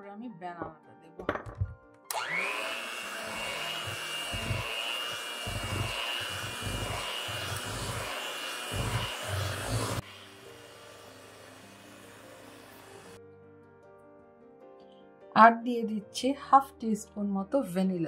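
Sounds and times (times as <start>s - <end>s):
electric hand mixer whining: 2.1s - 13.2s.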